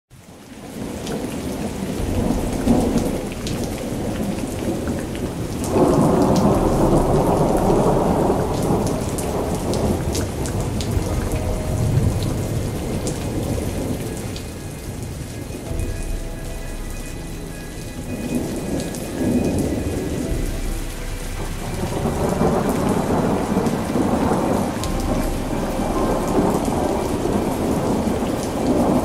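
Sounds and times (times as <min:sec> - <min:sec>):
steady rain: 0:00.1 - 0:29.0
rolling thunder: 0:00.6 - 0:29.0.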